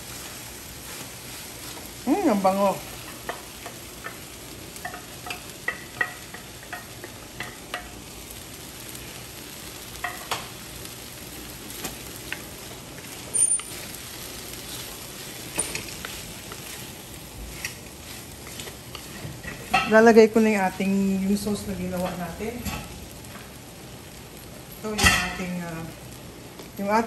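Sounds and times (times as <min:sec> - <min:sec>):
rice sizzling in a wok: 0:00.0 - 0:27.0
wooden spatula scraping a pan: 0:11.8 - 0:20.1.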